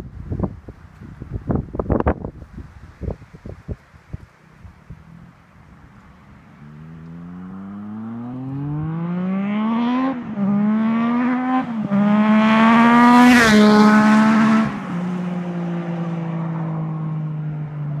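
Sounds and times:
motorcycle accelerating past: 6.2s - 18.0s.

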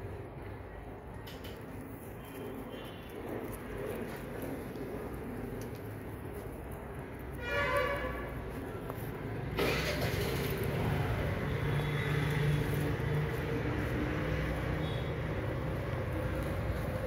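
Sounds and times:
vehicle engine humming: 1.4s - 17.0s.

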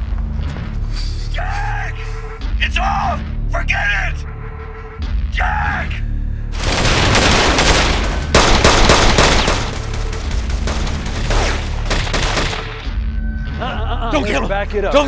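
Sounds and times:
automatic gunfire: 6.6s - 12.8s.

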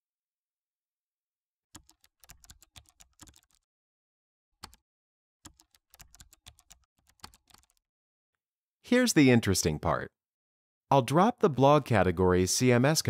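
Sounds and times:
computer keyboard typing: 1.8s - 3.6s, 4.6s - 4.8s, 5.5s - 7.8s.

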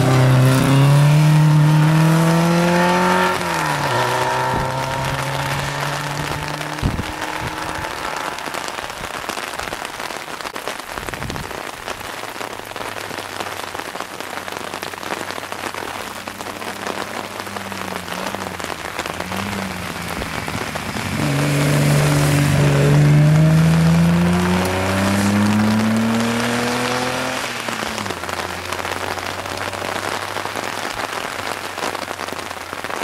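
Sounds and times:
distant rally car engine: 0.0s - 9.2s, 16.0s - 30.4s
loud rally car approaching: 0.0s - 9.2s, 16.0s - 30.4s
rain patter: 0.0s - 33.0s.

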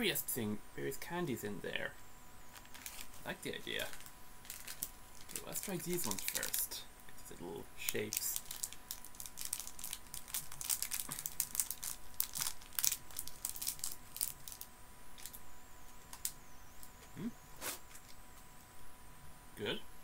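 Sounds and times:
plastic bag crackling and rustling: 2.5s - 6.8s, 7.8s - 15.4s.

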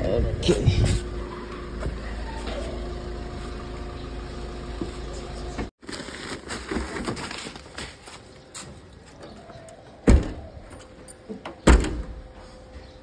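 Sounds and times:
car engine idling: 0.5s - 5.7s
rustling plastic-wrapped sack: 5.8s - 8.4s.

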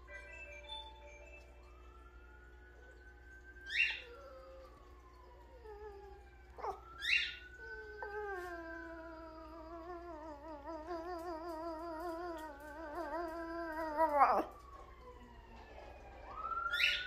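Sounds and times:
fire truck siren: 1.0s - 17.0s
dog howling: 3.7s - 15.0s.

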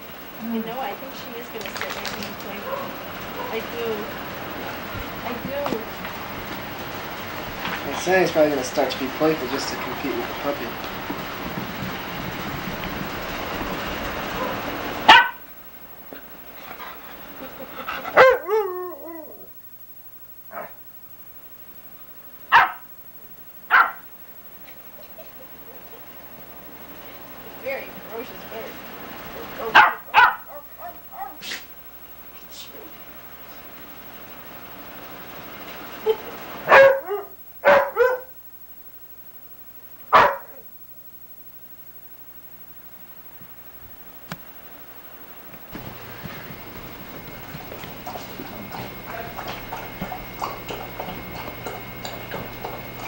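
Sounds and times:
dogs barking: 2.5s - 3.8s, 14.2s - 15.5s, 16.7s - 18.7s, 20.5s - 20.8s, 22.5s - 22.9s, 23.7s - 24.1s, 29.4s - 31.7s, 36.0s - 38.4s, 40.1s - 40.7s, 45.8s - 53.0s
dog yelping: 14.4s - 15.4s, 17.8s - 19.5s, 22.5s - 22.9s, 23.7s - 24.0s, 29.6s - 31.6s, 36.0s - 38.4s, 40.1s - 40.6s.

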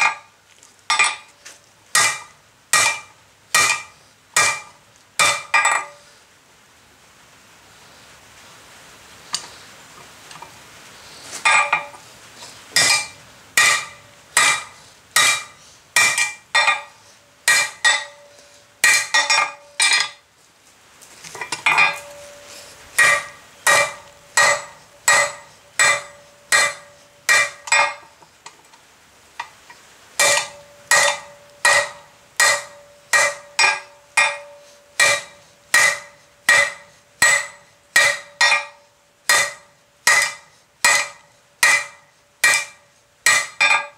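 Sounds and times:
hammer striking hot steel on anvil: 0.9s - 1.3s, 2.0s - 6.0s, 11.5s - 12.0s, 12.8s - 20.2s, 21.4s - 28.1s, 30.2s - 43.9s
anvil ringing: 12.8s - 16.9s, 17.5s - 20.2s, 21.6s - 28.0s, 30.2s - 43.9s.

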